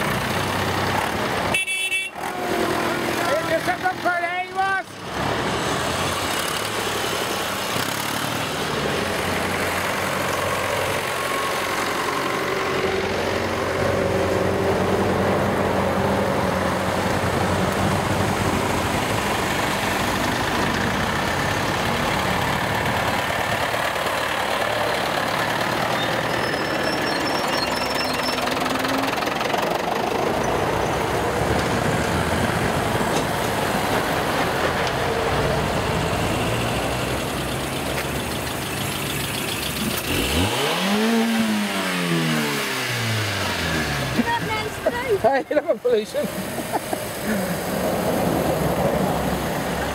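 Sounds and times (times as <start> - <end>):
cars passing: 0.0 - 49.9
tractors driving past: 0.0 - 49.9.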